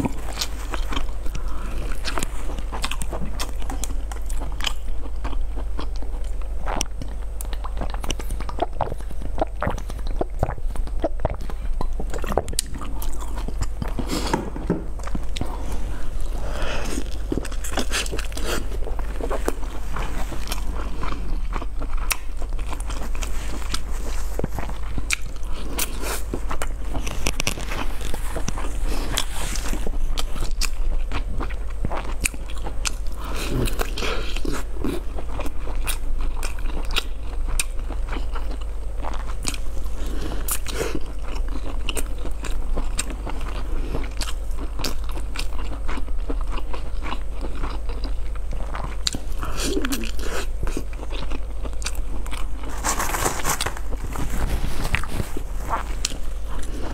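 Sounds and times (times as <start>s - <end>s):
low hum: 0.0s - 32.1s
crunching crisp pastry: 0.0s - 56.9s.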